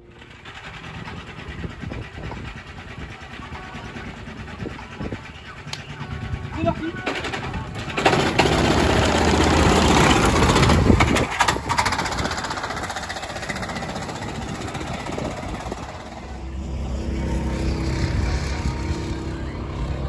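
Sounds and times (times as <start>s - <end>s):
go-kart engine pulling away: 0.0s - 5.0s, 5.9s - 20.0s
kart engine hum from track: 0.0s - 20.0s.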